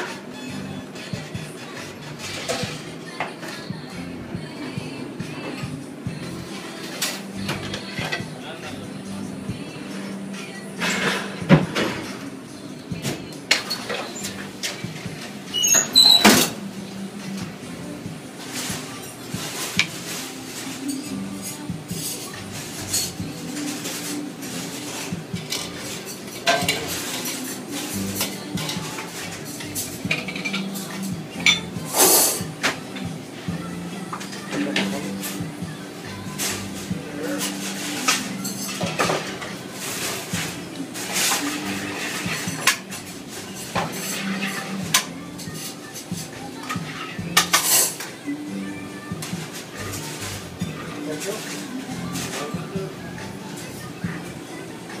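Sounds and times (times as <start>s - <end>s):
cutlery and dishes clinking: 0.0s - 3.9s, 4.6s - 9.2s, 9.9s - 55.0s.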